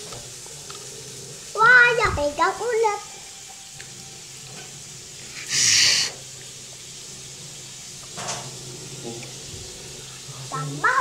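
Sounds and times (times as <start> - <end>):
sharp hiss: 4.5 - 10.6.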